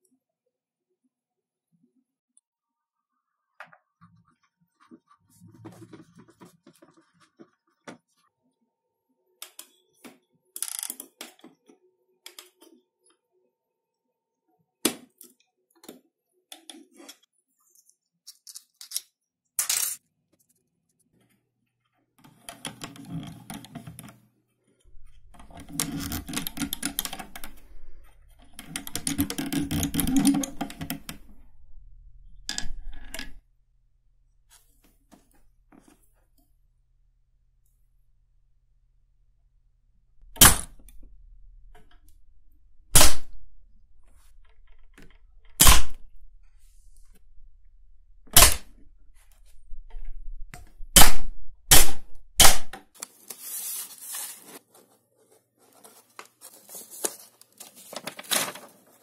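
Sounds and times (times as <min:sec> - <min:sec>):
metal parts clicking on wood: 0:25.3 - 0:27.8, 0:28.4 - 0:31.3.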